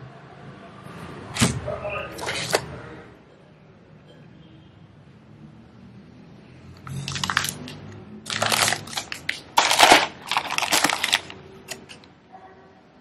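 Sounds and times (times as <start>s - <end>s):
plastic and paper bags crinkling: 6.9s - 12.0s.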